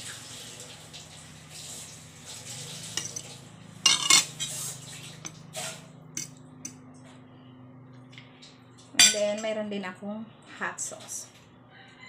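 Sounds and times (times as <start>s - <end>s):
steady low hum: 2.9s - 10.8s
cutlery clinking on ceramic plate: 3.0s - 3.3s, 3.9s - 4.5s, 9.0s - 9.2s.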